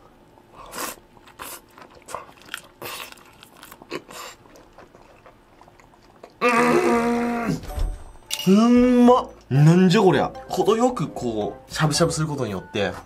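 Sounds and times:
person chewing with wet smacks: 0.6s - 6.4s
person humming mmm: 6.4s - 7.7s, 8.4s - 9.4s.

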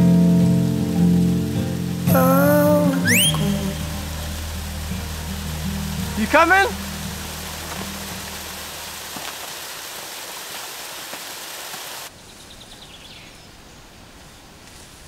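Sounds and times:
waterfall rushing: 0.0s - 12.1s
forest ambience: 0.0s - 15.0s
faint high chirps: 2.8s - 5.4s.

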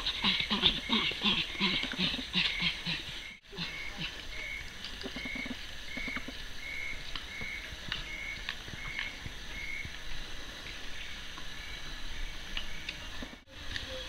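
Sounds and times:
bonobos calling: 0.0s - 9.9s.

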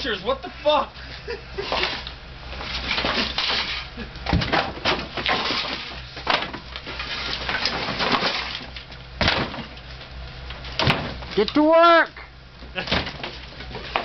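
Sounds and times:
heavy thump: 10.8s - 11.3s.

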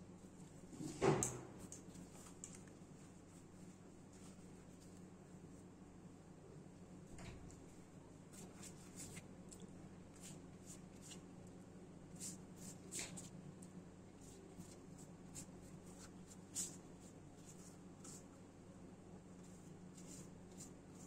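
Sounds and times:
low steady hum: 0.0s - 21.0s
pastry sheets rustling: 8.2s - 18.6s, 19.2s - 21.0s.

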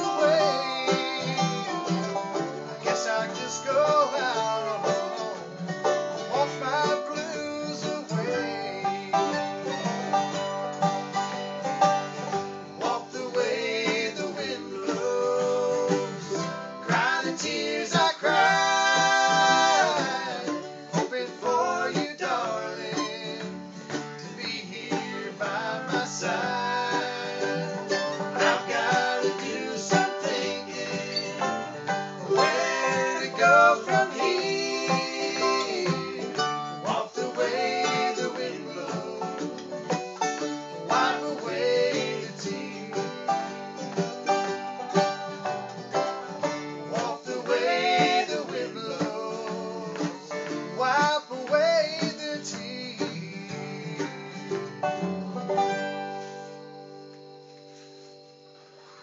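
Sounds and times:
man singing: 0.0s - 5.4s, 6.3s - 10.0s, 12.8s - 39.8s, 40.8s - 43.3s, 46.9s - 54.7s
mandolin: 0.0s - 57.2s
banjo picking: 0.0s - 57.4s
acoustic guitar: 0.0s - 59.0s.

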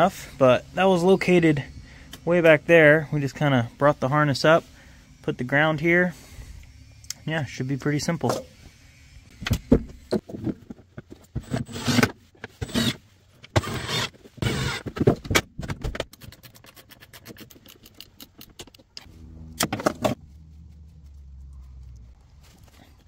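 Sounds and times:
low hum with pitched tone: 0.0s - 10.1s, 19.0s - 23.0s
rustling and clattering of tools: 9.4s - 20.5s
fast small clicks: 16.0s - 22.2s.

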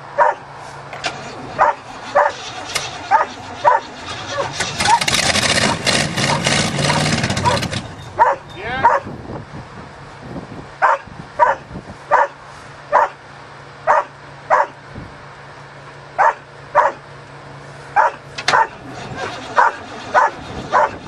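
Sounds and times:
dog barking: 0.2s - 0.4s, 1.6s - 2.4s, 3.1s - 5.0s, 5.7s - 9.1s, 10.8s - 13.2s, 13.9s - 14.8s, 16.2s - 17.0s, 18.0s - 18.8s, 19.5s - 21.0s.

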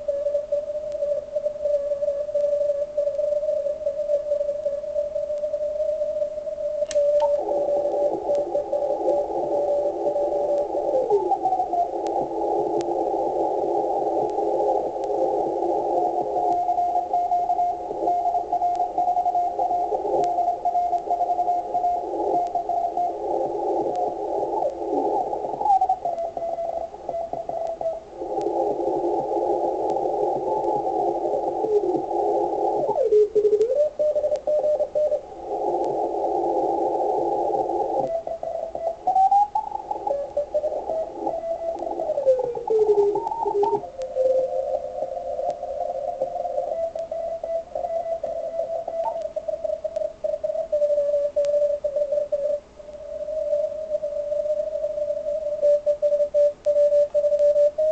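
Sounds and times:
radio hiss: 0.0s - 57.9s.

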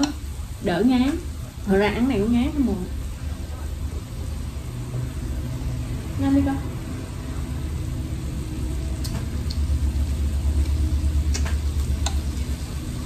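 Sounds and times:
chopsticks clicking: 10.6s - 12.2s.

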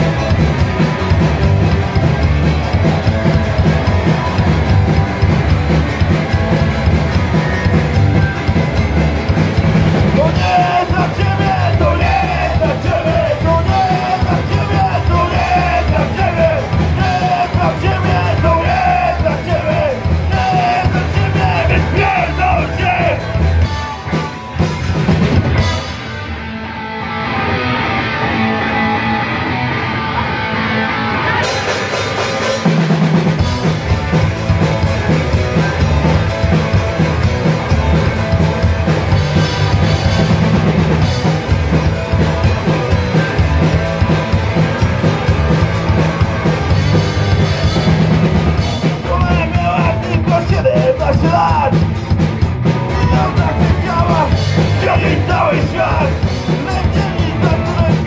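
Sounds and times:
drum kit with cymbals: 0.0s - 26.3s, 31.3s - 58.0s
bass guitar: 0.0s - 58.0s
electric guitars: 0.0s - 58.0s.

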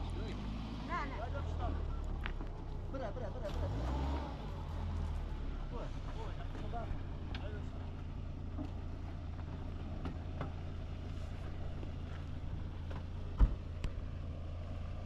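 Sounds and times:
sharp thump: 13.3s - 13.6s.

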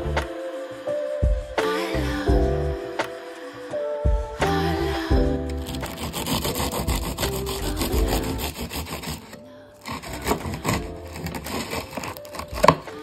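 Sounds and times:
knife sawing crackling crust: 5.6s - 13.0s.

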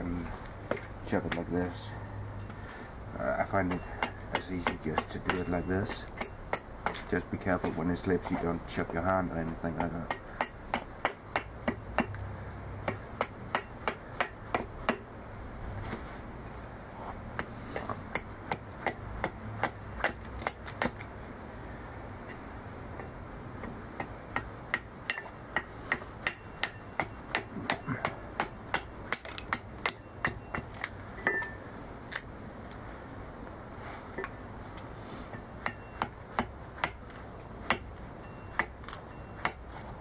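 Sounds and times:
axe chopping wood: 24.4s - 30.9s, 35.6s - 37.9s.

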